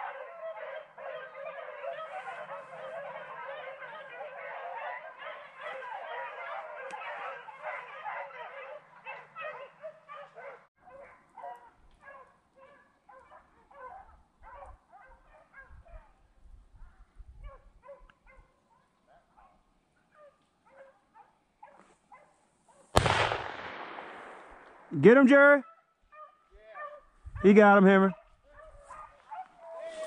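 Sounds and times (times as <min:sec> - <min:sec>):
hounds baying: 0:00.0 - 0:16.2, 0:16.8 - 0:22.9, 0:25.0 - 0:30.0
wind rumbling on microphone: 0:15.6 - 0:17.8, 0:27.2 - 0:27.5.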